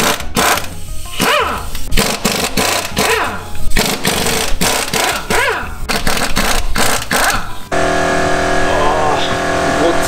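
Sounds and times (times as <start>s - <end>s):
impact wrench hammering: 0.0s - 7.5s.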